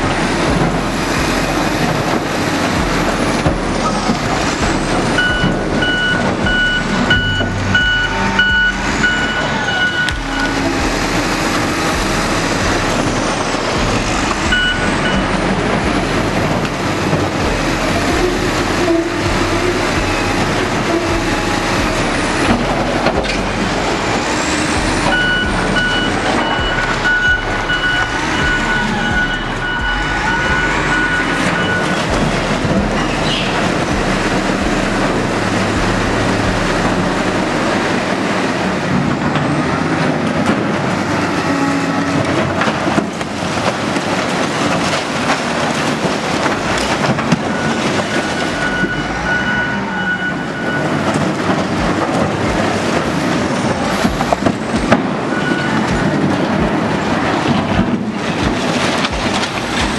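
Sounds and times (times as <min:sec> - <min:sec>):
reversing alarm beeping: 0:00.0 - 0:38.6, 0:47.1 - 0:53.0, 0:53.7 - 0:57.6
diesel engine under load: 0:00.0 - 0:59.9
rubble falling: 0:42.2 - 0:48.9
concrete breaking: 0:42.2 - 0:49.0.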